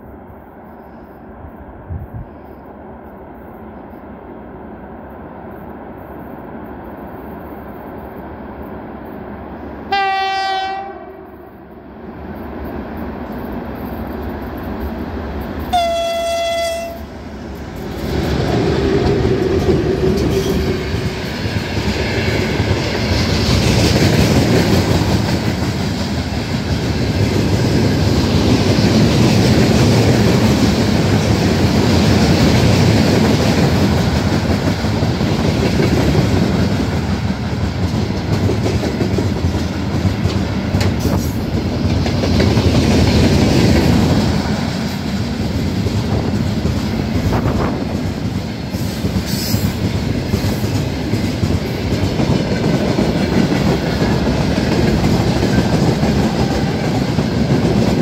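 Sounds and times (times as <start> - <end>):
freight train rumbling past: 0.0 - 58.0
locomotive horn: 9.9 - 11.5, 15.7 - 17.1.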